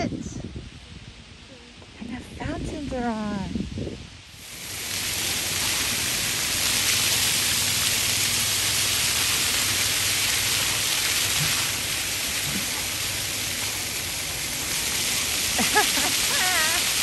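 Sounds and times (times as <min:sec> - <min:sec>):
fountain jets splashing: 0:04.3 - 0:17.0.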